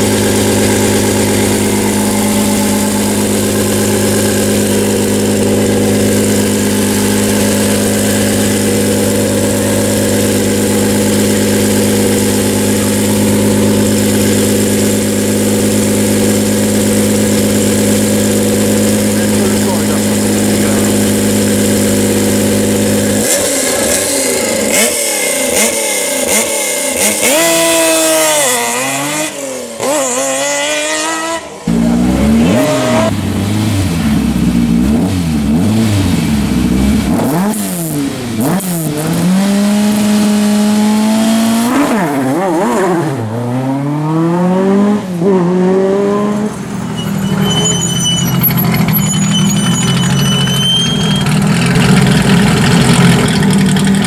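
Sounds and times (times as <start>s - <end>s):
turbo whine: 0.0s - 24.8s, 46.8s - 54.0s
car engine idling: 0.0s - 27.1s, 31.4s - 41.9s, 46.6s - 54.0s
rally car engine revving: 0.0s - 54.0s.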